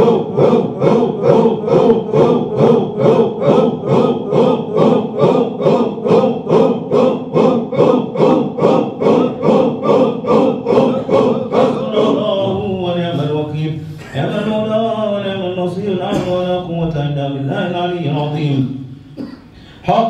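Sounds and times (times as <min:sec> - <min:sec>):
men chanting in unison: 0:00.0 - 0:19.0.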